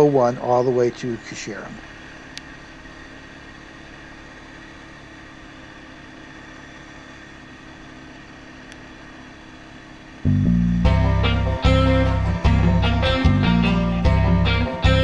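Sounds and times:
atv engine running: 0:00.0 - 0:15.0.

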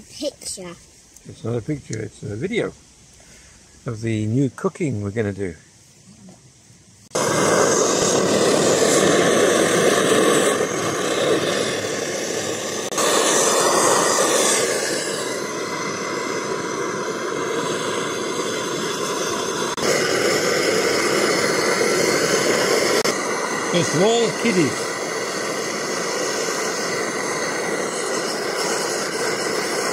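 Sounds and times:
gas stove burner hissing: 0:00.0 - 0:29.9.

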